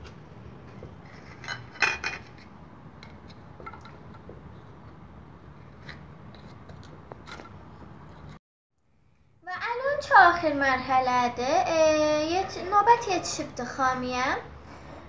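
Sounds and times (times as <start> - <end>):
dishes and utensils clattering: 1.3 - 2.4.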